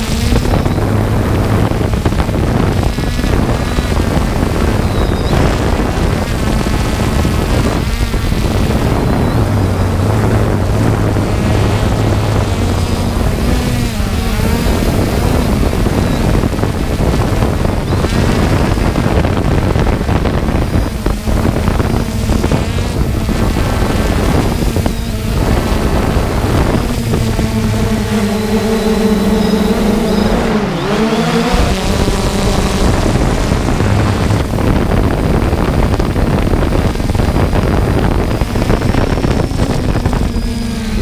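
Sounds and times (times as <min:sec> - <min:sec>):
drone motors and propellers humming: 0:00.0 - 0:41.0
wind buffeting microphone: 0:00.0 - 0:41.0.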